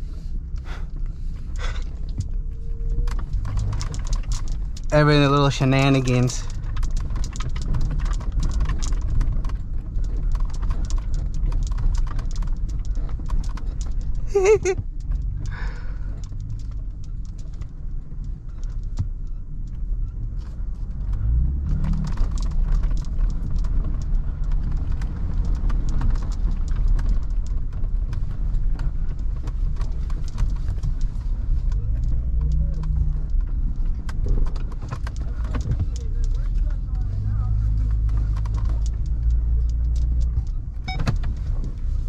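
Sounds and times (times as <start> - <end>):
truck engine drone from inside cab: 0.0 - 42.0
small clicks and knocks: 0.6 - 42.0.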